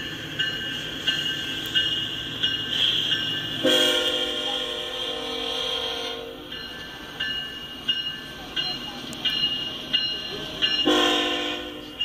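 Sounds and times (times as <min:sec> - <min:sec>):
freight train rumbling: 0:00.0 - 0:12.0
railroad bell striking: 0:00.0 - 0:12.0
locomotive horn: 0:03.6 - 0:06.5, 0:10.9 - 0:12.0.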